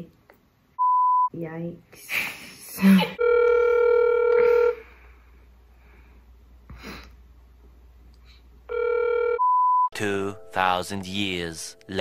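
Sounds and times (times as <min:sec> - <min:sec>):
phone ringback tone: 0:03.2 - 0:04.9, 0:08.7 - 0:09.9.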